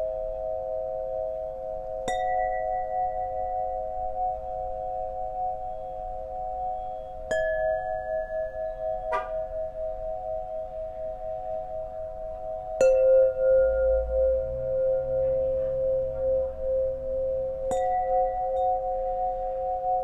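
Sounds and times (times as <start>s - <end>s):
tuning pipes ringing: 0.0s - 20.0s.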